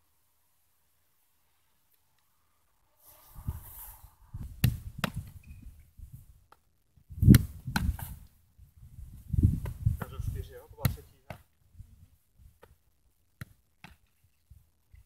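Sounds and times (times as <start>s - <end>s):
football thudding on gloves: 10.8s - 11.4s.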